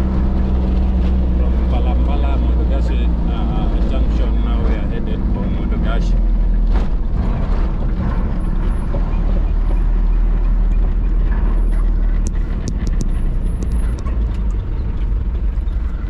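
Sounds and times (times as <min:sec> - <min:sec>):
vehicle rumbling on highway: 0:00.0 - 0:16.0
sharp clicks or rattles: 0:06.7 - 0:15.2.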